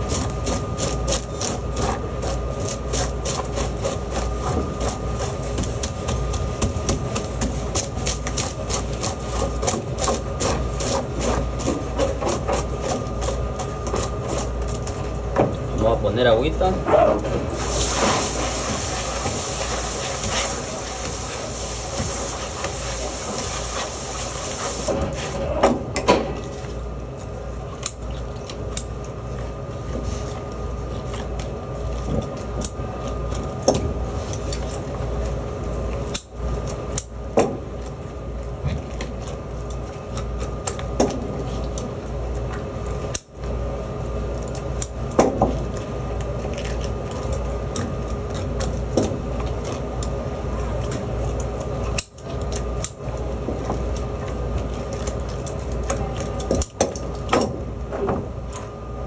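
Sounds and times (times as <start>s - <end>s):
scrapes and knocks of fish cleaning: 0.0s - 16.0s, 16.8s - 59.0s
steady background hum: 0.0s - 59.0s
tap water running: 17.6s - 25.0s.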